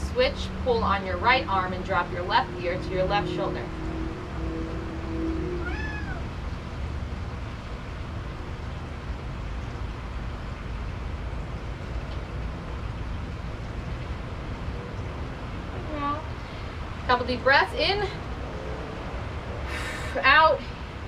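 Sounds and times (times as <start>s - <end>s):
low rumbling background noise: 0.0s - 21.0s
cat meowing: 5.4s - 6.3s.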